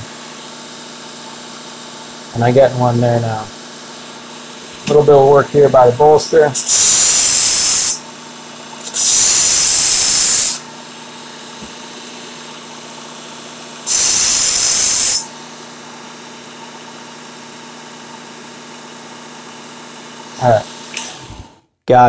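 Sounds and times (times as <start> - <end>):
belt sharpener motor hum: 6.6 - 8.0, 8.8 - 10.6, 13.8 - 15.3.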